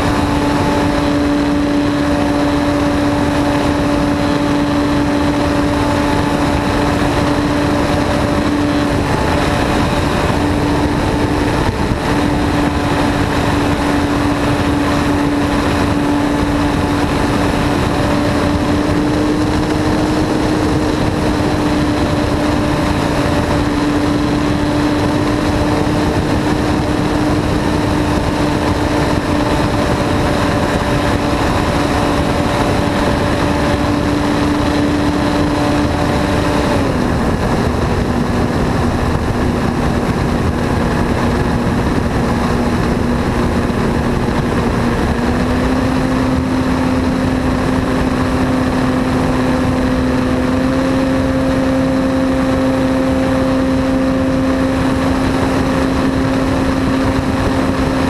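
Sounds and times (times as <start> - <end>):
model plane motor and propeller: 0.0 - 58.0
rush of air: 0.0 - 58.0.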